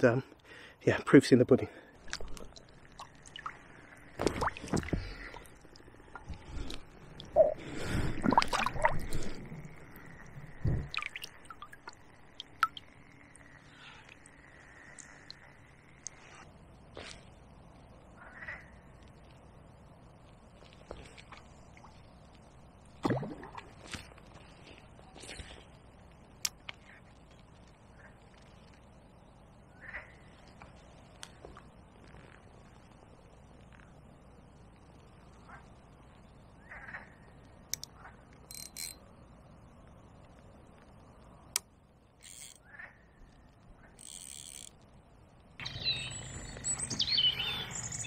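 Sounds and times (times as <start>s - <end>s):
faint bird calls: 18.1s - 19.1s, 29.6s - 30.8s, 35.4s - 38.3s, 45.6s - 48.0s
fishing tackle clicks: 37.7s - 39.0s, 41.5s - 42.6s, 44.0s - 44.8s
fishing tackle rustling: 42.2s - 42.6s, 44.0s - 44.8s.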